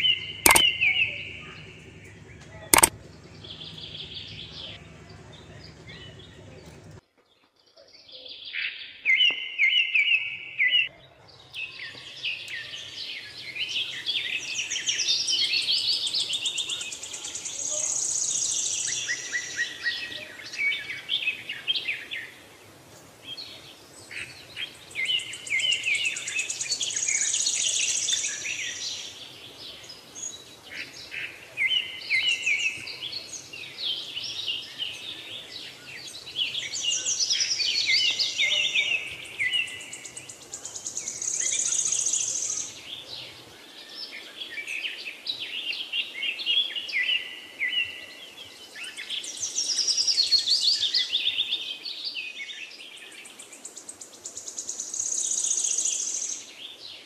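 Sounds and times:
birds chirping and singing: 0.0 - 7.0, 23.3 - 57.0.

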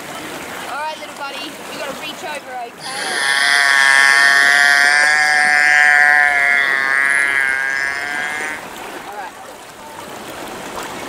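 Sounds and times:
beluga whale buzzy call: 2.8 - 8.7.

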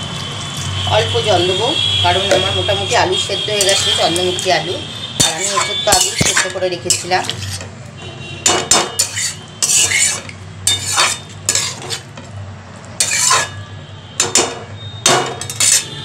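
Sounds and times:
spoon scraping metal pot: 2.2 - 7.8, 8.5 - 12.2, 13.0 - 13.6, 14.2 - 16.0.

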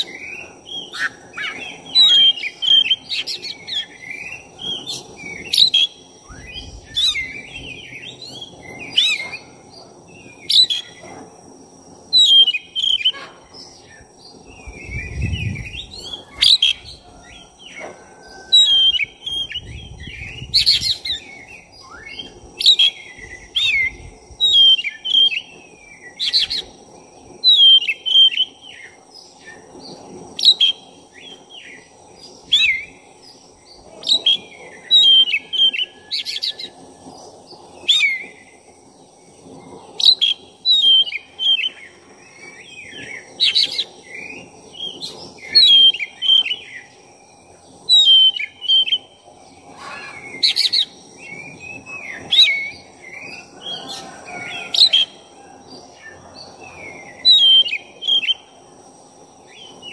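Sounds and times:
bird singing whistled phrases: 12.1 - 13.2, 27.4 - 28.9, 34.0 - 36.8, 42.8 - 46.8, 47.9 - 49.1, 57.2 - 58.5.

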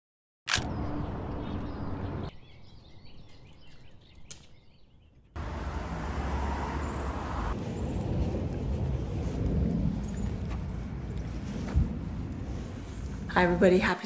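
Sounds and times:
low rumble: 7.2 - 13.6.

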